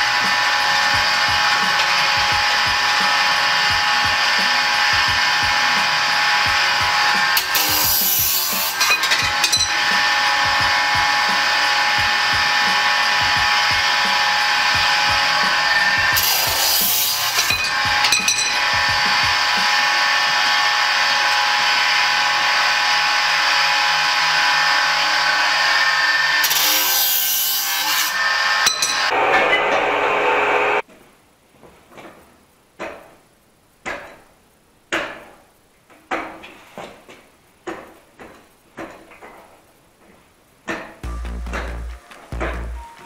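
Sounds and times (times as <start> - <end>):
chop saw grinding steel: 0.0 - 30.6
sharp knocks: 40.7 - 42.9.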